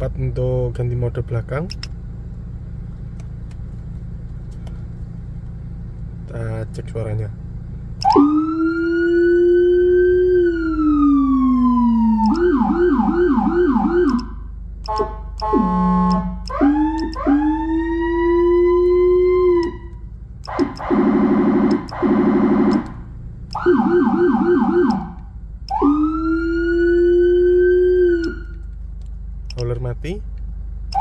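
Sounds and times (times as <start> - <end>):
electronic siren wailing and yelping: 8.0 - 28.6
buzzy horn blast: 14.8 - 16.6.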